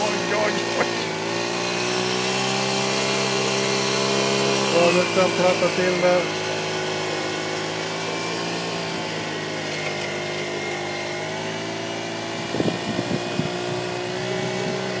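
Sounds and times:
pushing gravel: 0.0s - 2.0s, 3.2s - 11.0s
toy motors whining: 0.0s - 15.0s.

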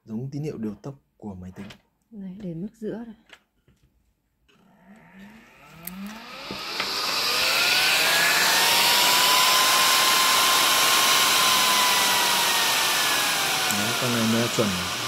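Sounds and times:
cooling fan whirring: 5.0s - 15.0s.

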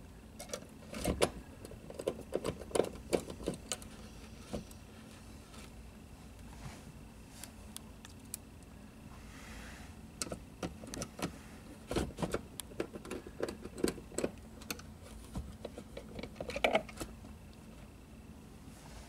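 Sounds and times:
plastic console clicks and knocks: 0.4s - 3.9s, 10.2s - 11.3s, 11.9s - 17.1s.

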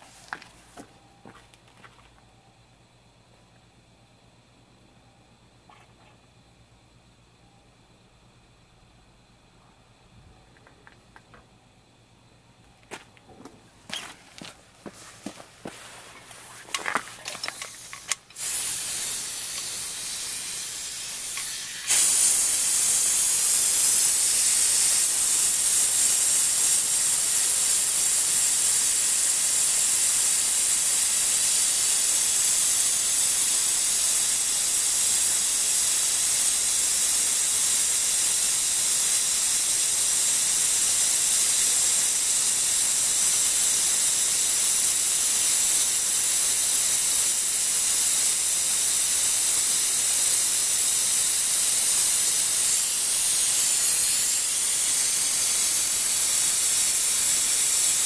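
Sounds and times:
compressed air hissing: 13.9s - 58.0s.

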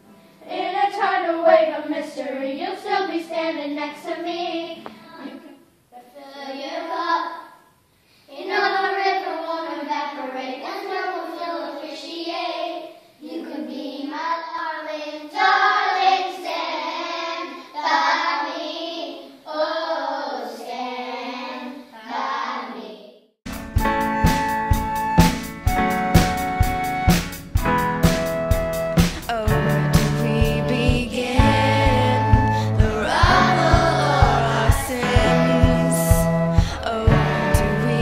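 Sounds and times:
children singing: 30.6s - 38.0s.

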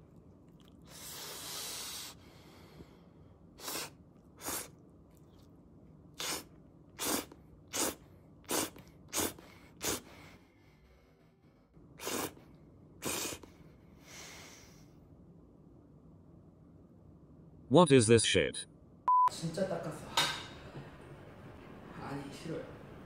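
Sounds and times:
person breathing noisily: 0.9s - 4.7s, 13.0s - 15.0s.

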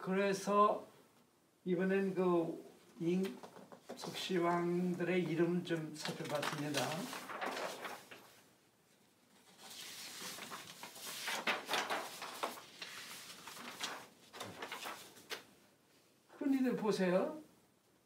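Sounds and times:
paper sheets rustling: 3.2s - 15.5s.

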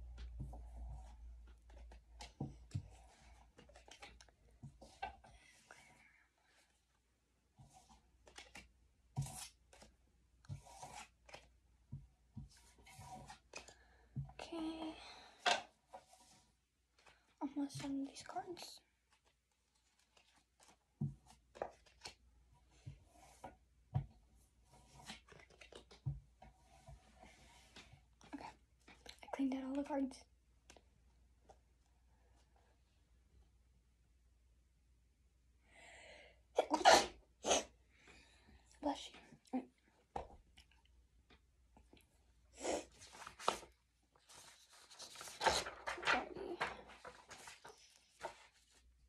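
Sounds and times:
paper rustling: 0.3s - 5.2s, 7.6s - 11.6s, 19.0s - 22.3s, 24.6s - 28.0s, 42.8s - 49.0s.

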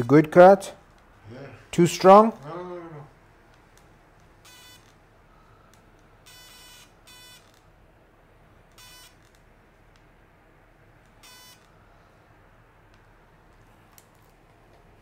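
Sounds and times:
short electronic beeps: 4.5s - 4.8s, 6.3s - 7.5s, 8.8s - 9.2s, 11.2s - 11.6s.

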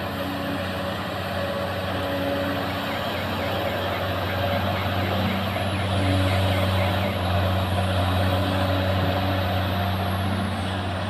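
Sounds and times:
heavy diesel engines droning: 0.0s - 11.0s.

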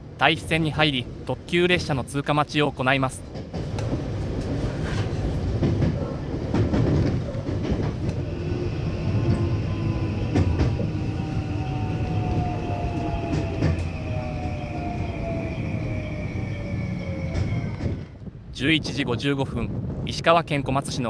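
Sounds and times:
train running rumble: 0.0s - 18.6s
train wheels clicking over joints: 3.1s - 18.2s
falling braking whine: 8.1s - 18.2s.

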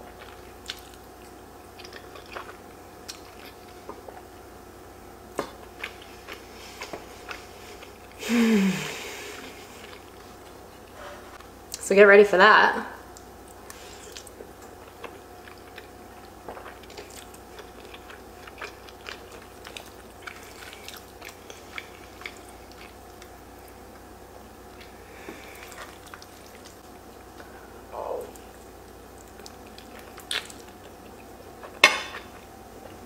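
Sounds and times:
faint steady hum: 0.0s - 33.0s
person chewing and slurping: 0.1s - 4.2s, 13.5s - 23.3s, 24.8s - 32.4s.

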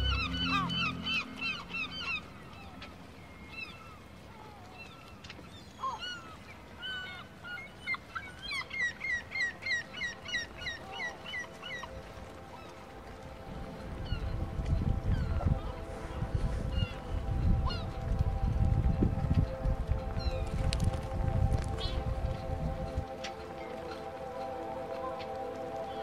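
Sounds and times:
birds calling in sharp notes: 0.0s - 4.2s.

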